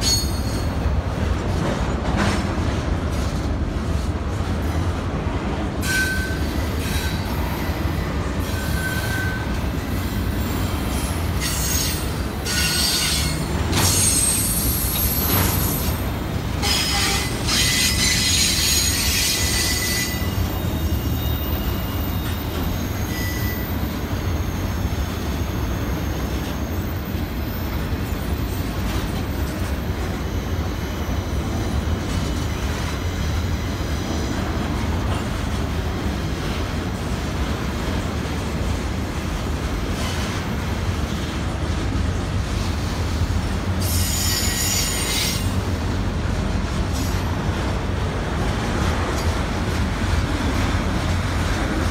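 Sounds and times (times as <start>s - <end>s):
train wheels rumbling on rails: 0.0s - 51.9s
high-pitched wheel squeal: 5.8s - 7.8s, 8.4s - 16.0s, 16.6s - 28.7s, 43.8s - 45.6s.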